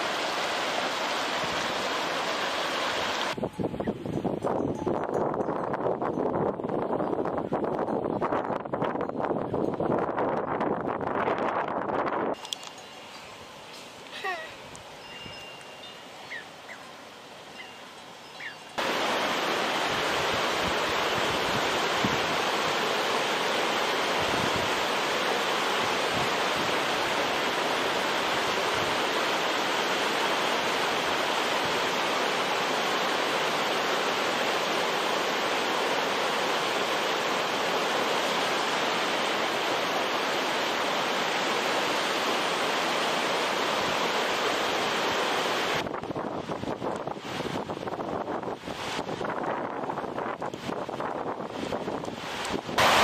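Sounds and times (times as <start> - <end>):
loud steady rushing noise: 18.8 - 46.0, 52.5 - 53.0.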